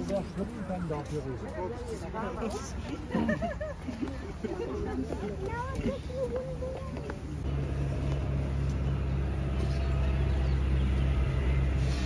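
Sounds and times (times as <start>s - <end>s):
low motor rumble: 5.6s - 12.0s.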